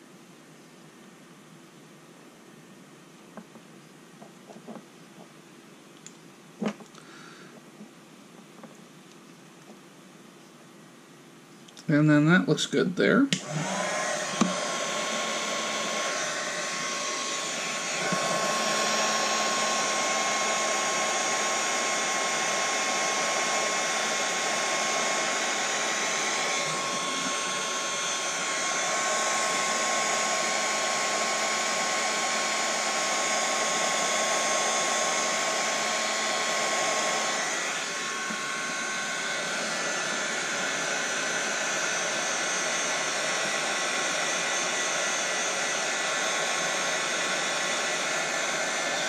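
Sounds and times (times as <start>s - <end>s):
thin steady whine: 8.6s - 49.0s
heat gun blowing: 13.3s - 49.0s.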